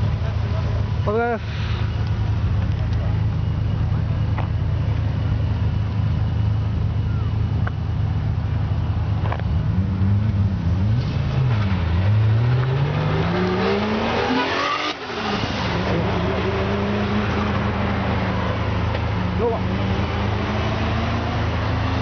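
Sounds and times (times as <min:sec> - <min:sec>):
engine running steadily: 0:00.0 - 0:22.0
car engine accelerating: 0:08.9 - 0:22.0.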